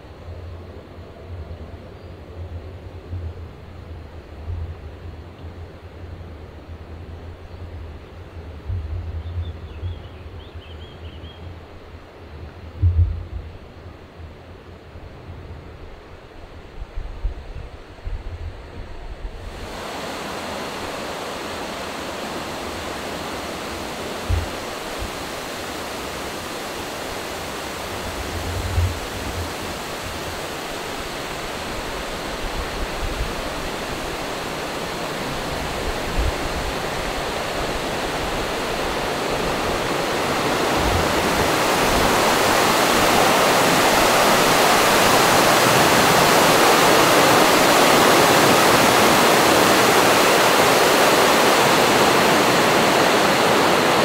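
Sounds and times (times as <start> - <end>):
soft low thumps: 12.8 - 13.6
rushing mountain stream: 19.4 - 54.0.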